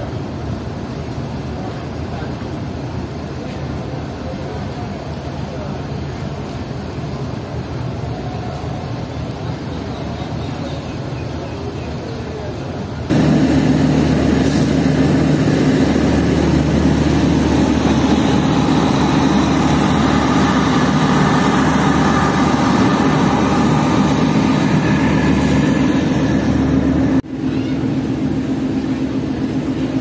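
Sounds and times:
train rolling past: 0.0 - 30.0
diesel generator droning: 13.1 - 30.0
quiet engine drone: 13.1 - 30.0.

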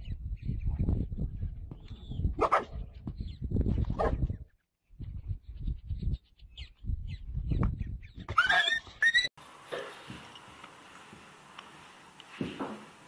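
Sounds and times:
dog barking: 2.4 - 2.8.

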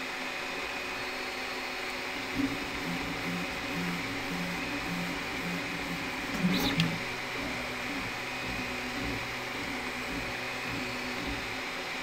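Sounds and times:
stepper motor tones: 2.3 - 11.8.

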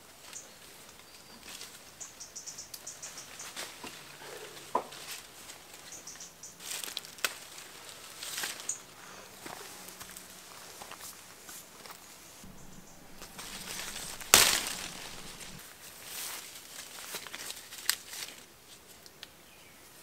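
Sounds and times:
leaves and branches rustling: 0.0 - 19.3
small crackles: 4.6 - 15.6, 16.2 - 19.4
branch snaps: 6.7 - 7.7, 12.5 - 15.6.

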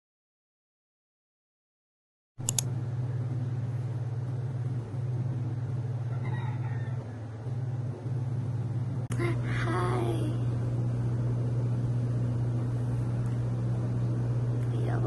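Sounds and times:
click: 2.4 - 2.7
air conditioner humming: 2.4 - 15.0.

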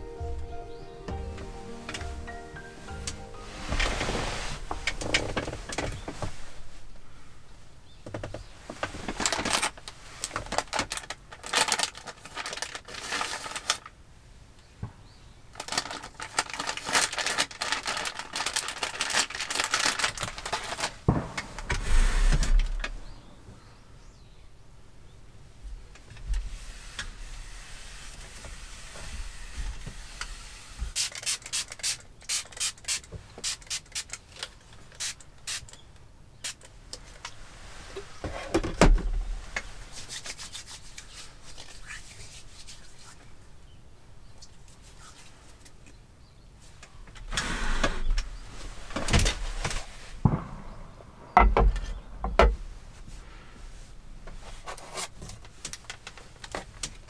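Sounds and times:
paper rustling: 8.8 - 13.9, 15.6 - 22.8.

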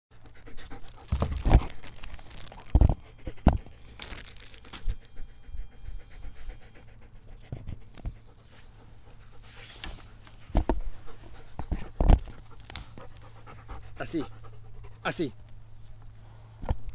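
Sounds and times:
dog panting: 0.1 - 2.1, 2.9 - 3.9, 4.9 - 15.4.

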